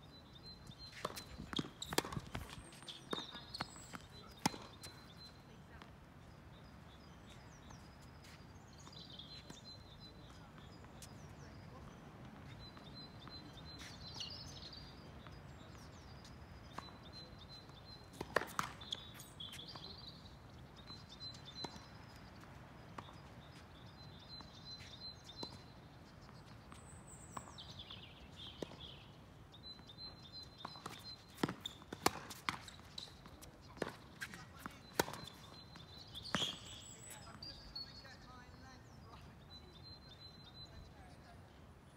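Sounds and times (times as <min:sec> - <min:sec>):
birds chirping: 0:00.1 - 0:41.6
tennis ball struck by rackets: 0:01.0 - 0:04.9, 0:30.6 - 0:33.0, 0:33.8 - 0:35.6.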